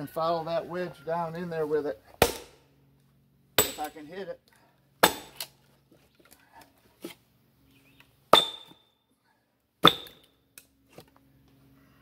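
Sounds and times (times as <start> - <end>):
hammer striking steel wedge: 2.2 - 2.6, 3.6 - 4.0, 5.0 - 5.4, 8.3 - 8.8, 9.8 - 10.3.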